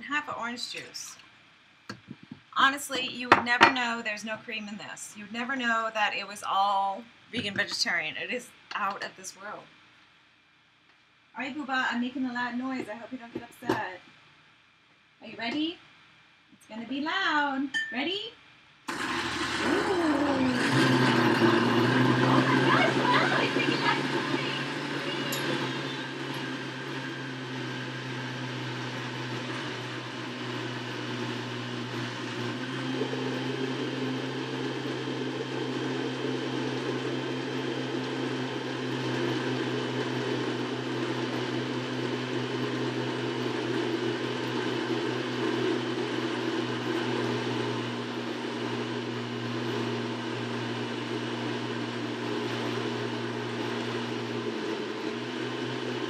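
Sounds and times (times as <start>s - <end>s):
blender running: 18.9s - 56.0s.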